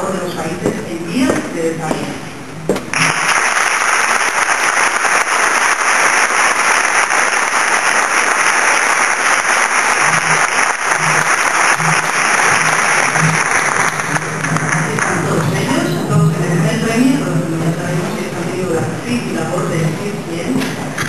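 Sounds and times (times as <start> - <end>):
audience applauding: 2.9 - 15.6.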